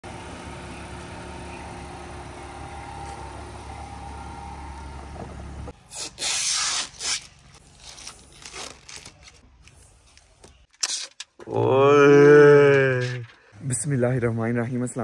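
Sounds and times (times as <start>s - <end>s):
plastic film peeling and rubbing: 5.8s - 11.2s
plastic film tearing off: 5.9s - 9.8s.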